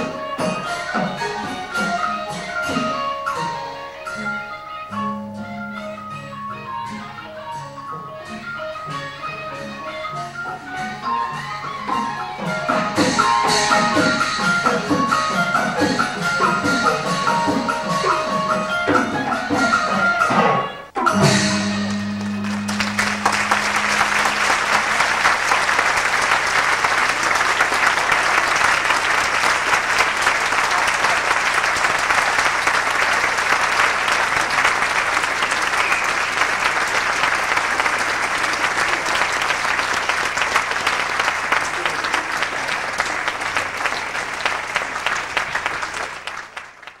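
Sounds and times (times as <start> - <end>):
audience applauding: 21.8 - 47.0.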